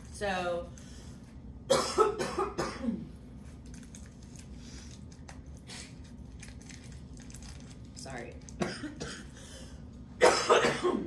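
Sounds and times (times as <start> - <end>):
person coughing: 1.7 - 3.1, 8.6 - 9.5, 10.2 - 11.0.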